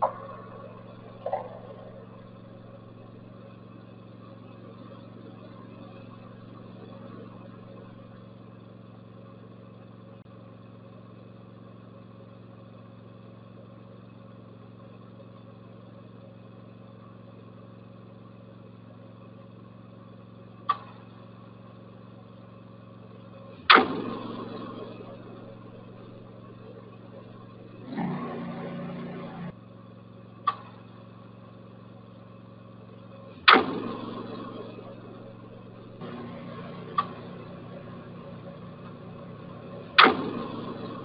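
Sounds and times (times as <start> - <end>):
riding mower engine idling: 0.0 - 41.0
sharp click: 20.7 - 21.0, 40.0 - 40.4
loud bang: 33.4 - 39.0, 39.7 - 41.0.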